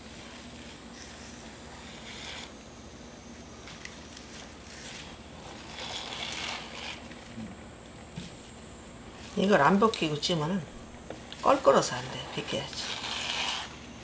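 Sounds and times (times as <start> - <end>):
leaves rustling and tearing: 12.3 - 13.7.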